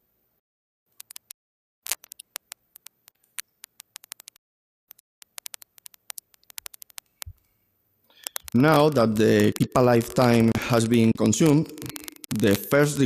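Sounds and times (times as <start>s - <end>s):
small sharp clicks: 1.0s - 7.5s, 8.1s - 10.6s, 11.2s - 12.6s.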